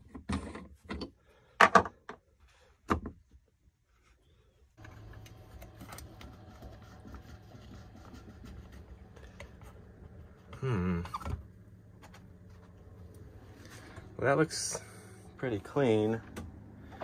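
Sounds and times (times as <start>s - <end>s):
steady low hum: 4.3s - 17.0s.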